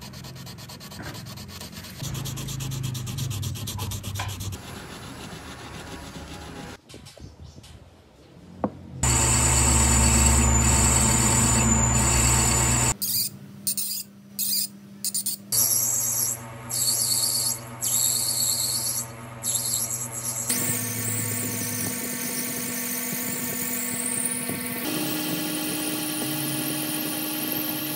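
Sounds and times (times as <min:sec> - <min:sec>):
lathe motor humming: 0:09.0 - 0:13.0
cutting tool on metal: 0:09.0 - 0:14.6.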